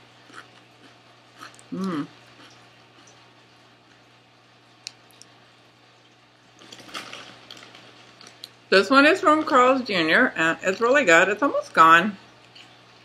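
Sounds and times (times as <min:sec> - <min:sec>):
soft crackling of chips: 0:06.0 - 0:08.7.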